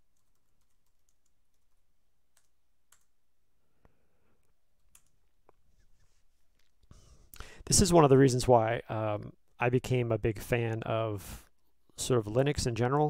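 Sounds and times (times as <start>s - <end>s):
keystrokes on computer keyboard: 0.1s - 3.1s, 4.8s - 5.2s.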